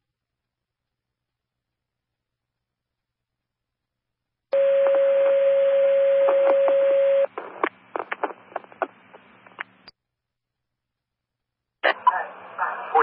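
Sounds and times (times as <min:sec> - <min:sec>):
radio crackles and pops: 0:04.5 - 0:10.0
radio alert tone: 0:04.6 - 0:07.3
radio hiss: 0:06.5 - 0:09.6, 0:12.0 - 0:13.0.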